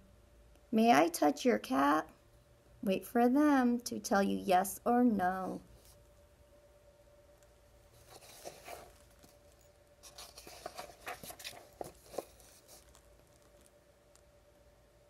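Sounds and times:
paper pages turning: 0:08.0 - 0:13.8.

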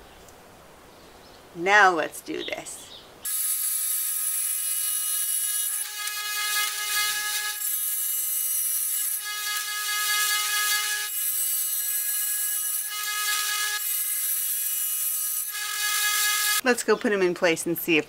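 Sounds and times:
wet tile saw whining: 0:03.3 - 0:16.6.

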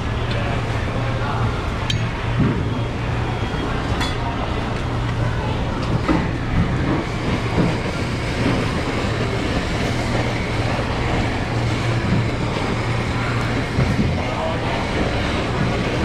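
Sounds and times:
steady low hum: 0:00.0 - 0:16.0
blowtorch flame hissing: 0:05.6 - 0:16.0.

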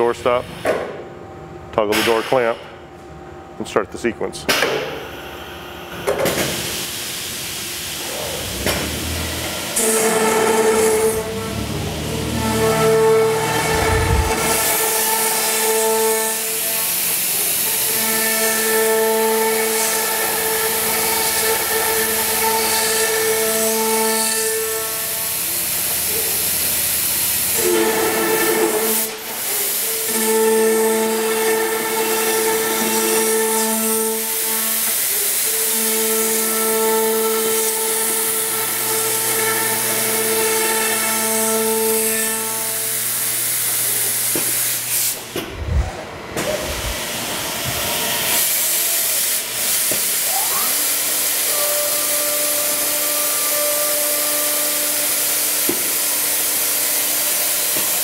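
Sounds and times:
router spindles whining: 0:09.6 - 0:15.8
loud hiss: 0:13.0 - 0:18.7, 0:46.5 - 0:58.0
low rumble: 0:13.4 - 0:14.8, 0:45.5 - 0:46.1.

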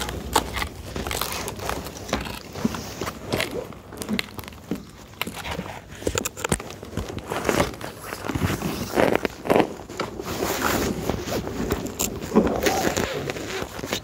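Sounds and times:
clothing and camera rustling: 0:00.0 - 0:14.0.

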